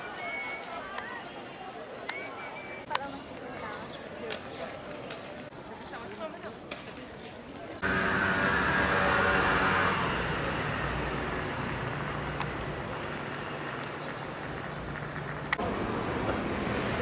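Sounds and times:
road traffic: 0:07.8 - 0:17.0.

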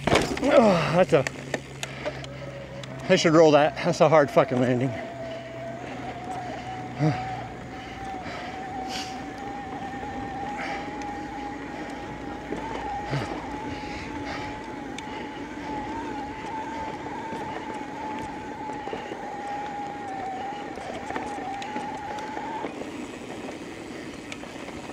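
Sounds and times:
bike knocks and rattles: 0:00.0 - 0:02.2
electric bike motor whining: 0:00.0 - 0:24.9
tyres rolling on dirt: 0:00.0 - 0:24.9.

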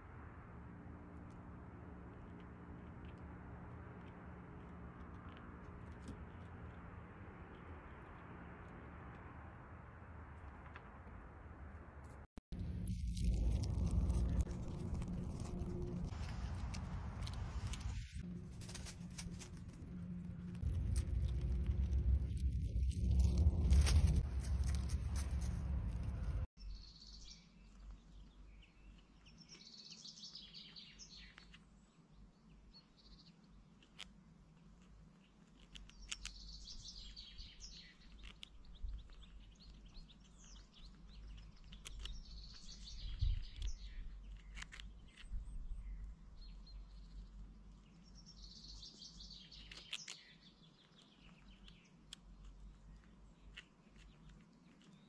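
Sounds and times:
rumbling noise: 0:05.3 - 0:26.5
small songbirds chirping: 0:26.6 - 0:55.0.

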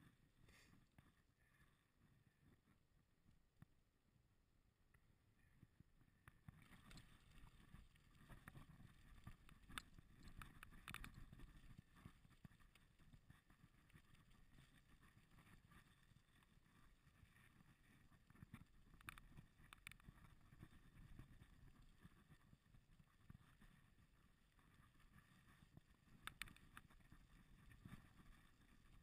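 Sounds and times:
small clicks and rattles: 0:06.2 - 0:29.0
bicycle tyres rolling on gravel: 0:06.6 - 0:18.0.

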